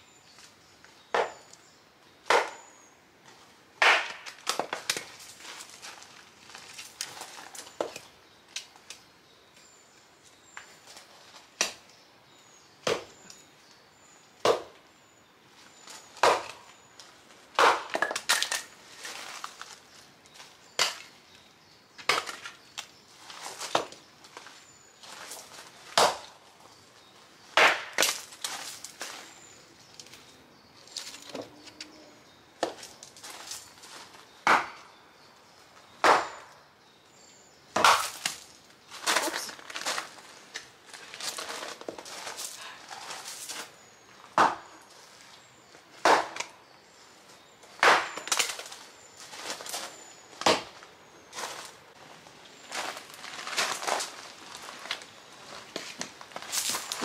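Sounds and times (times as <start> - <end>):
hatchet chopping log: 2.3 - 2.6, 3.8 - 5.0, 12.8 - 13.1, 14.4 - 14.8, 16.2 - 16.6, 17.6 - 18.4, 26.0 - 26.2, 27.6 - 28.2, 34.4 - 34.9, 36.0 - 36.5, 37.8 - 38.2, 44.4 - 44.6, 46.0 - 46.5, 47.8 - 48.5, 50.4 - 50.7
wood splitting knocks: 37.8 - 38.4, 46.0 - 46.5, 50.4 - 50.8.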